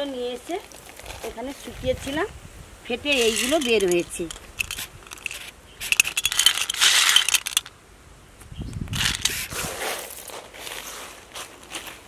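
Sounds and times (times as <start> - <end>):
hand rustling dry husks: 3.0 - 7.7, 9.0 - 12.0
seeds clinking into metal bowl: 3.1 - 7.7.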